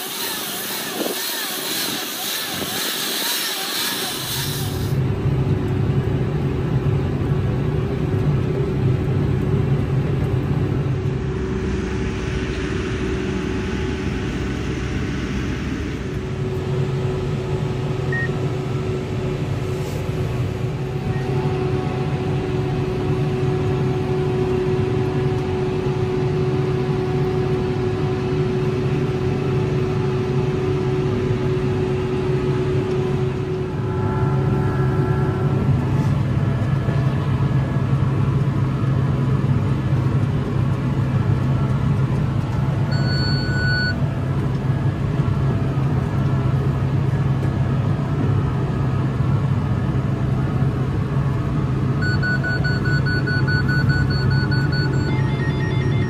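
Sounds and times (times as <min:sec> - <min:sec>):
bright hiss: 0:00.0 - 0:05.0
tractor engine droning: 0:00.0 - 0:56.0.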